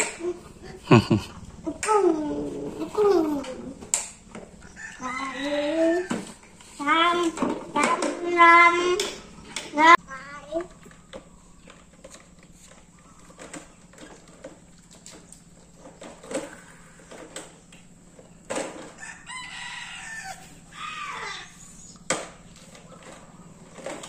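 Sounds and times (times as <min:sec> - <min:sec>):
plastic toy trucks clattering: 0:03.0 - 0:09.6, 0:10.6 - 0:19.1, 0:22.1 - 0:24.0
rooster crowing: 0:04.6 - 0:06.3, 0:18.7 - 0:21.7.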